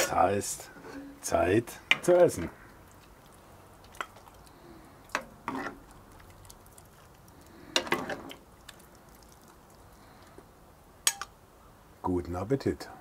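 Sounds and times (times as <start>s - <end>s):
ladle scraping a cast-iron pot: 5.1s - 6.0s, 7.7s - 8.4s.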